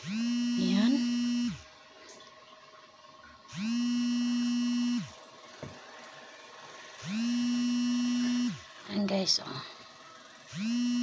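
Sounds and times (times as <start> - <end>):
small electric motor whirring: 0.0 - 1.6, 3.5 - 5.2, 6.9 - 8.8, 10.4 - 11.0.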